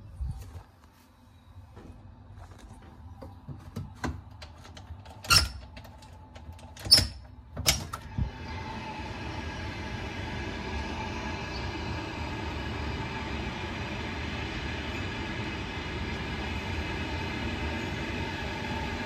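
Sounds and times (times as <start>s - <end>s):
passenger train running past: 8.1s - 19.0s.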